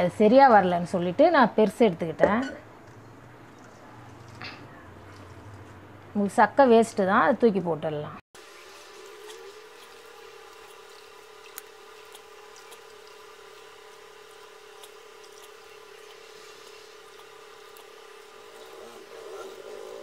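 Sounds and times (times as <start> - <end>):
wet squishing of wrung cloth: 9.1 - 18.7.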